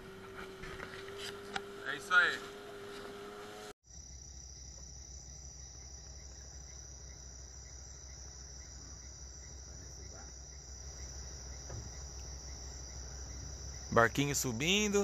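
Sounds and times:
short insect chirps: 3.8s - 15.0s
high-pitched insect drone: 3.9s - 15.0s.

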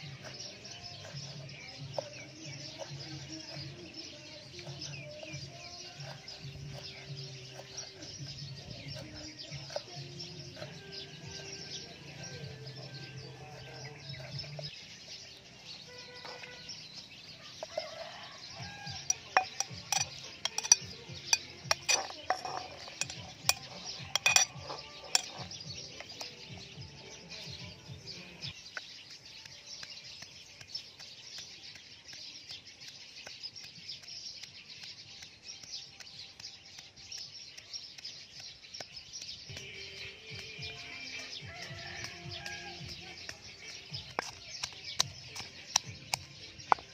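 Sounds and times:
ingredients dropped into mortar: 18.7s - 26.3s.

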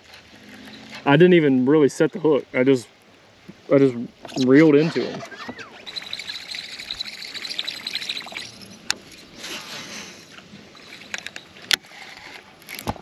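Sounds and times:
fishing reel ticking whine: 4.9s - 9.3s.

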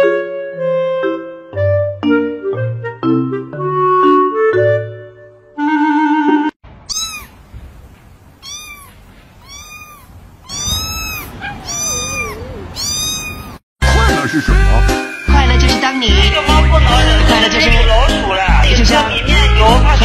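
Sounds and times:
cat meowing: 6.8s - 7.7s, 8.4s - 13.6s.

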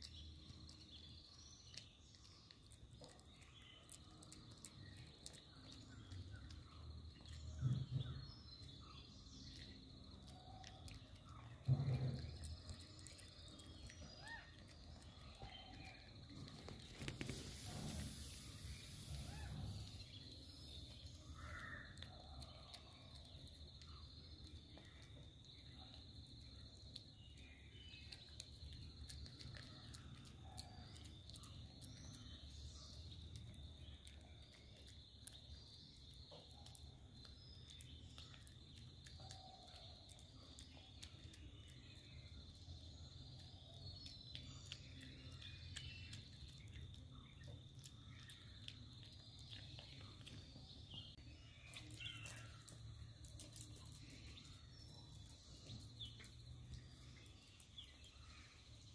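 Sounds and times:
bird chirps: 0.0s - 58.9s.

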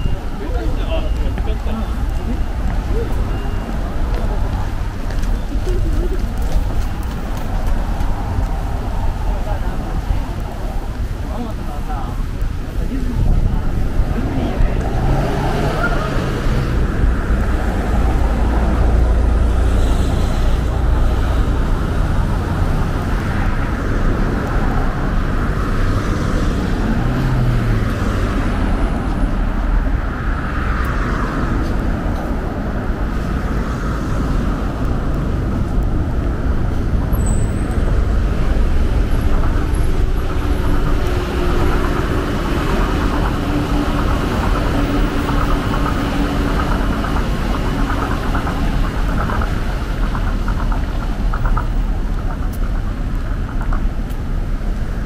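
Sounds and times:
bus engine hum: 0.0s - 55.0s
cars passing on road: 0.0s - 55.0s.

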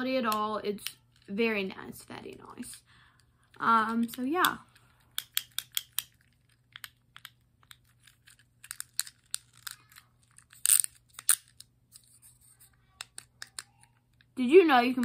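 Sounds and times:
fidget cube clicks: 3.5s - 12.1s.

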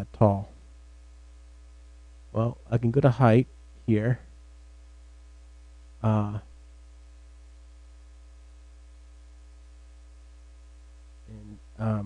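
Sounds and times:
faint hiss: 0.0s - 12.0s
low mains hum: 0.0s - 12.0s
person narrating: 6.0s - 6.5s.

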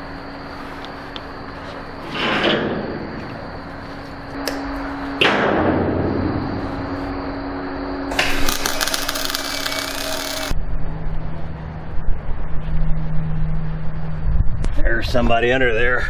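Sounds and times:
steady low hum: 0.0s - 16.0s
welding arc crackling: 8.1s - 10.6s.

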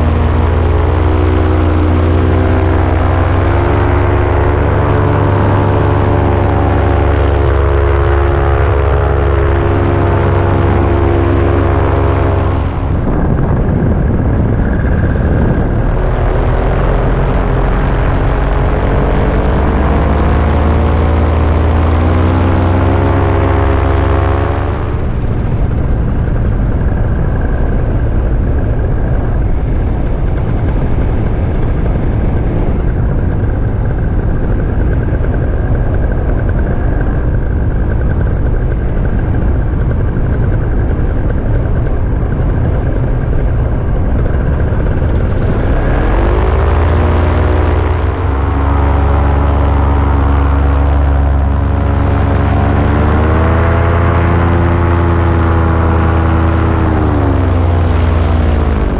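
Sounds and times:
paramotor engine and propeller: 0.0s - 58.9s
wind noise on microphone: 0.0s - 58.9s.

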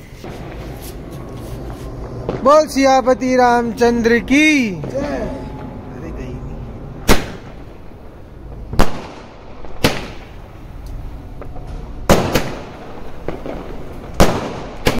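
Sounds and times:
firecracker bangs: 0.0s - 5.8s, 6.9s - 10.6s, 11.3s - 15.0s
faint firecracker pops: 11.4s - 15.0s.

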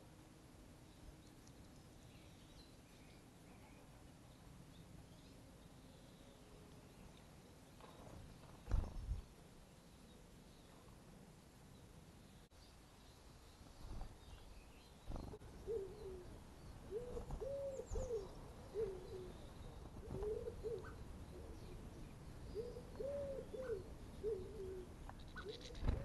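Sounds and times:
small birds chirping: 0.8s - 11.0s, 11.6s - 26.0s
dove cooing: 15.1s - 26.0s.

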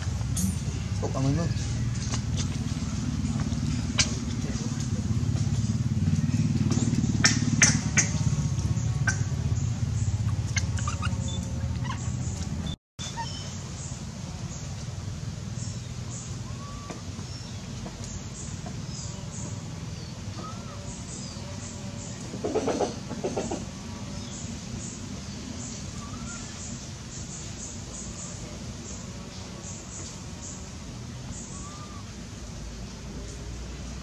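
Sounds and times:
steady low rumble: 0.0s - 12.8s
high bird chirps: 9.0s - 14.0s
two-part animal call: 10.3s - 12.2s.

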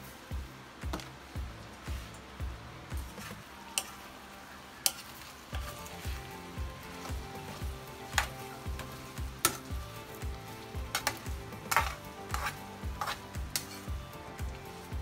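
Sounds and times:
background music with beat: 0.0s - 4.1s, 5.6s - 15.0s
potatoes sizzling in frying pan: 0.0s - 15.0s
spatula scraping a pan: 10.9s - 14.0s.

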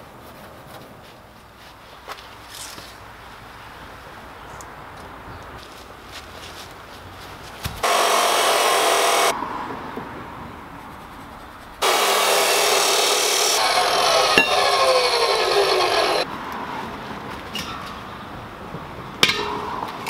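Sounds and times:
chop saw cutting steel: 7.8s - 9.4s, 11.8s - 16.3s.

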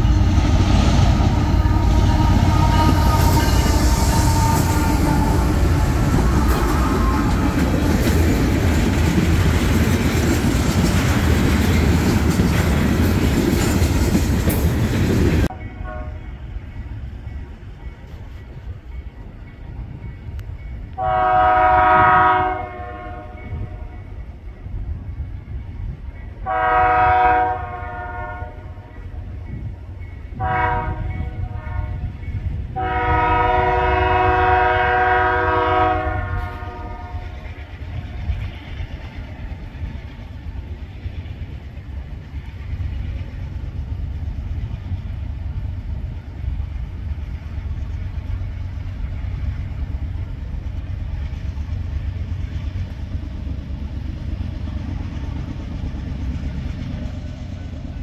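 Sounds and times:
train rumbling: 0.0s - 58.0s
locomotive air horn blasts: 1.2s - 7.7s, 15.7s - 16.3s, 21.0s - 24.0s, 26.4s - 28.9s, 30.4s - 32.1s, 32.8s - 37.4s.

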